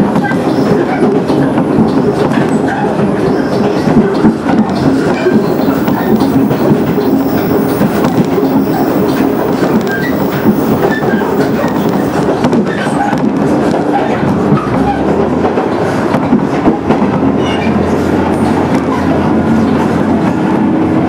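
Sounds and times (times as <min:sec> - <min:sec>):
train wheels rolling on rails: 0:00.0 - 0:21.0
diesel engine drone: 0:03.0 - 0:12.4.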